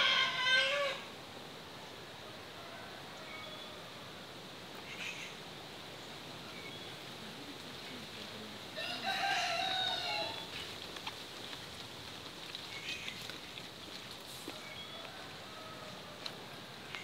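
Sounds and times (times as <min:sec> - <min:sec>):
rooster crowing: 0:00.0 - 0:01.1, 0:08.8 - 0:10.5, 0:14.6 - 0:16.4.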